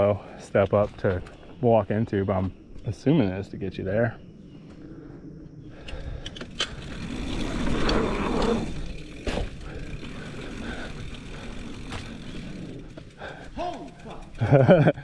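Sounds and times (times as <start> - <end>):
bike tyres rolling over dirt: 0.0 - 3.1, 6.2 - 15.0.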